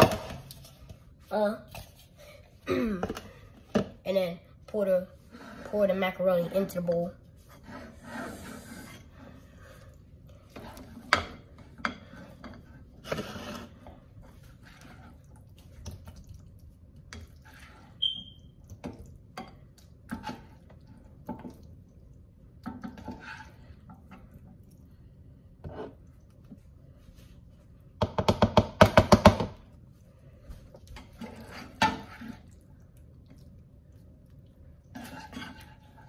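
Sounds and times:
spoon scraping dishes: 35.0 - 36.0.

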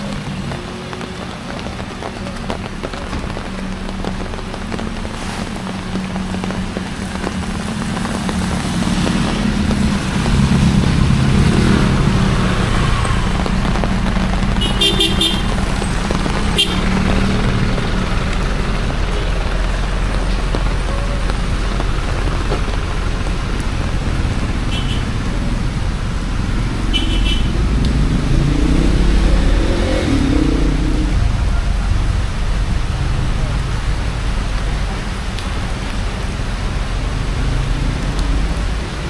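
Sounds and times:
rain hiss: 0.0 - 39.0
vehicle engines in traffic: 0.0 - 39.0
vehicle horn toots: 14.6 - 15.6, 16.5 - 16.9, 24.7 - 25.1, 26.9 - 27.5.

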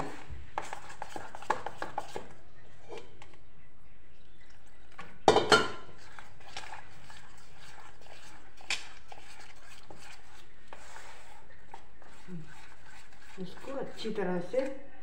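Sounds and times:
batter mixed in metal bowl: 0.0 - 15.0.

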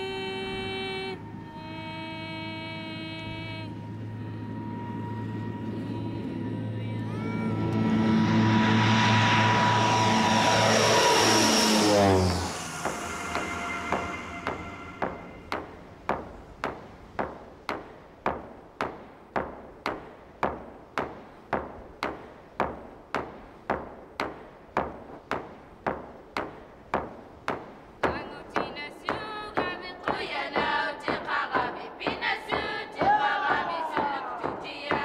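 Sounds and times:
people singing: 28.2 - 35.0.

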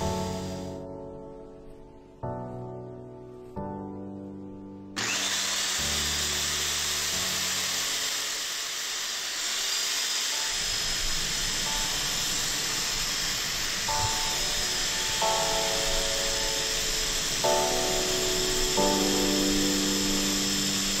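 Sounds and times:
electric polisher motor whirring: 0.0 - 0.7, 5.0 - 21.0
abrasive disc hissing on metal: 0.0 - 0.8, 5.0 - 21.0.

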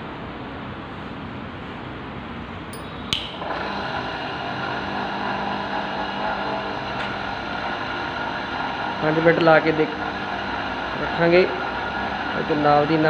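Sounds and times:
switch click: 2.8 - 3.4
electric motor humming: 3.3 - 13.0.

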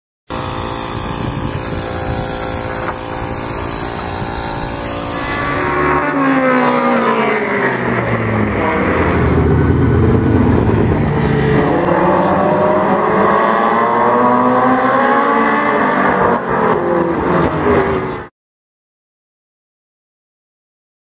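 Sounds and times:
race car engines racing: 4.0 - 18.3.

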